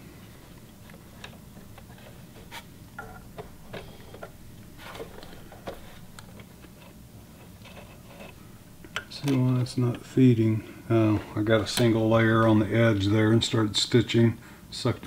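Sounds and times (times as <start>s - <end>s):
low hum: 0.0s - 7.3s.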